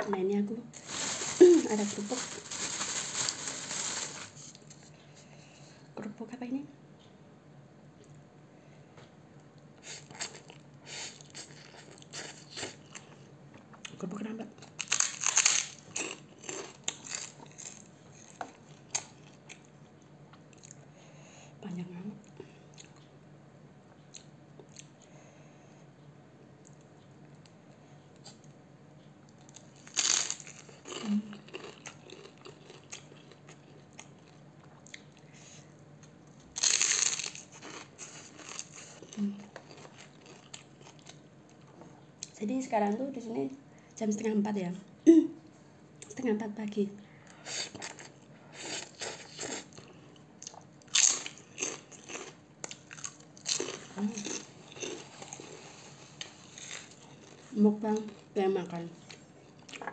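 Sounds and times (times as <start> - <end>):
cracker crunching when bitten: 14.6 - 17.9, 29.6 - 33.4, 36.6 - 41.2
crunching and chewing: 14.6 - 20.9, 23.9 - 25.2, 29.3 - 35.3, 36.0 - 42.4, 47.7 - 58.4, 59.0 - 59.9
chewing: 30.6 - 35.3, 37.4 - 42.4.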